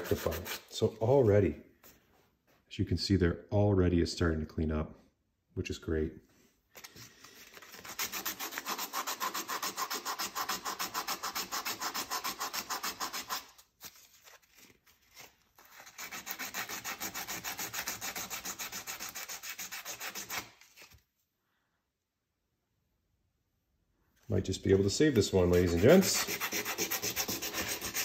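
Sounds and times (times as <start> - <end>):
sandpaper rubbing on metal: 0.0 - 0.8, 7.6 - 13.7, 15.6 - 20.6, 25.2 - 28.0.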